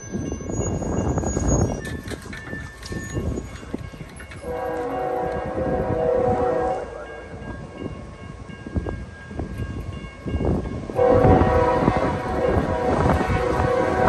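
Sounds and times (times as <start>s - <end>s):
distant locomotive horn: 4.4s - 7.5s, 10.9s - 14.0s.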